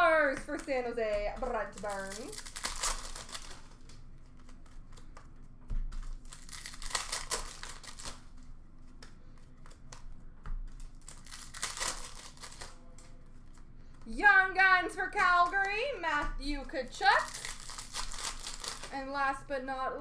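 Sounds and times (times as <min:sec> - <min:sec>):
paper rustling: 0:00.5 - 0:13.6, 0:17.0 - 0:18.9.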